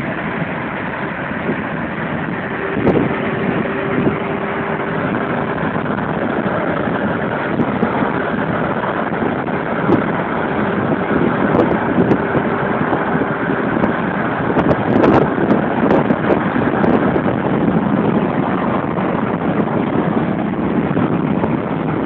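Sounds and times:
faint hum: 0.0s - 13.9s
car road and engine noise: 0.0s - 22.0s.

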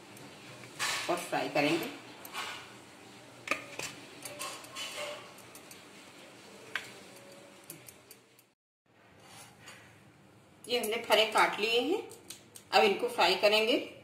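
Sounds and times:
knife scraping: 0.6s - 2.8s, 3.6s - 5.8s.

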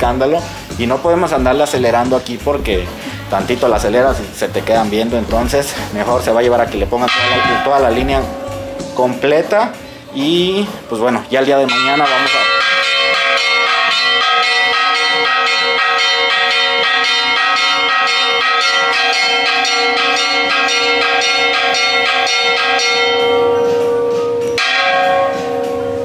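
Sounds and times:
bells ringing: 0.0s - 26.0s
heavier bell strike: 7.0s - 9.6s, 11.7s - 26.0s.

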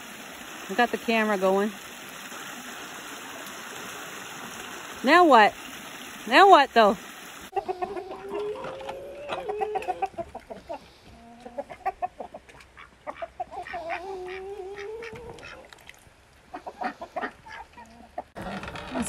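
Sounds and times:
chicken drawn-out calls: 7.5s - 15.7s, 16.5s - 18.8s
chickens clucking: 7.5s - 15.7s, 16.5s - 18.4s.

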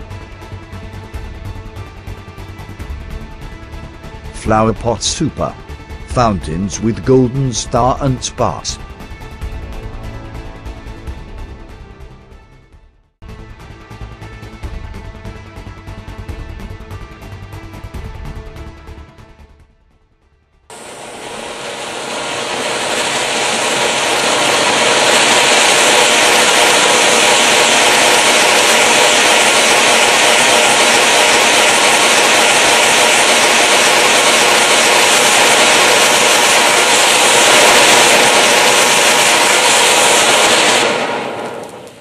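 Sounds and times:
firework fountain hissing: 20.7s - 42.0s.

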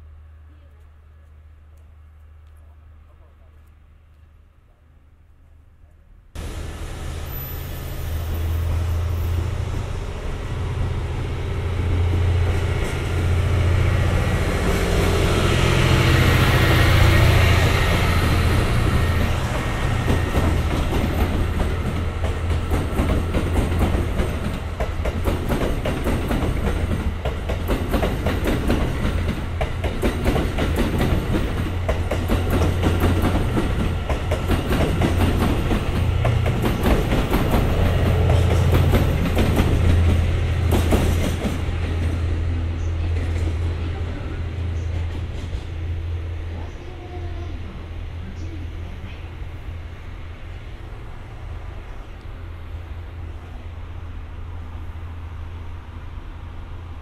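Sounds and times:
diesel engine drone: 6.4s - 20.7s.

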